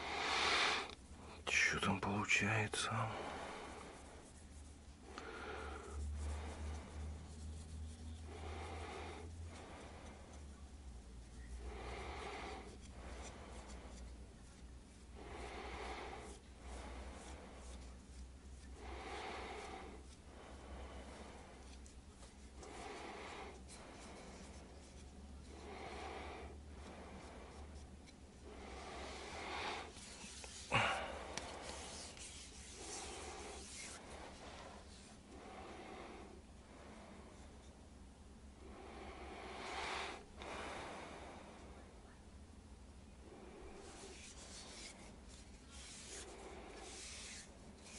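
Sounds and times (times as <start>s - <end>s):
low steady hum: 0.0s - 47.9s
hand rubbing wooden handle: 3.4s - 36.2s, 43.3s - 47.9s.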